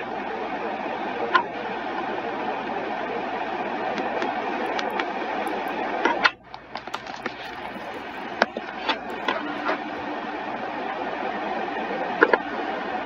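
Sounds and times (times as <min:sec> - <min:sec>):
laptop keyboard tapping: 0:04.0 - 0:09.9.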